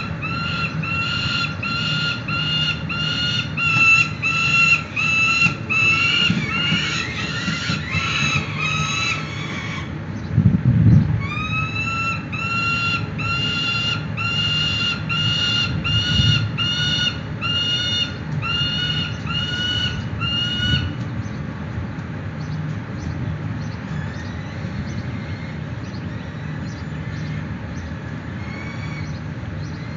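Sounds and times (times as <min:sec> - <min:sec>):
young falcons calling: 0:00.0 - 0:10.3, 0:11.2 - 0:21.5, 0:23.6 - 0:29.9
steady low rumble: 0:00.0 - 0:29.9.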